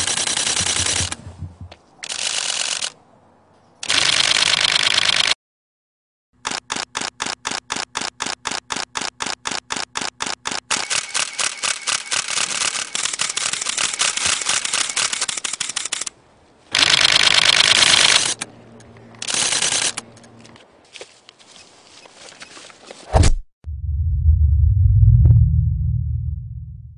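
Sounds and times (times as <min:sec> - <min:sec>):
camera shutter clicks: 0:02.0 - 0:03.0, 0:03.8 - 0:05.4, 0:06.4 - 0:20.3.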